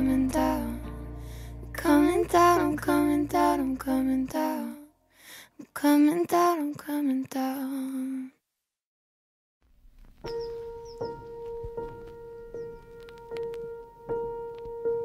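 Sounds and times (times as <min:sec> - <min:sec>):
low sustained backing music: 0:00.0 - 0:04.0, 0:10.3 - 0:15.0
woman singing soft pop melody: 0:00.0 - 0:04.8, 0:05.8 - 0:08.2.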